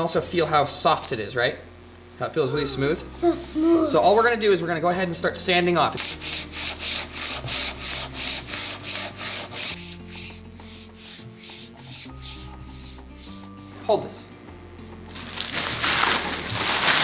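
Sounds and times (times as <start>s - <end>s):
sandpaper rubbing on wood finish: 6.0s - 13.6s.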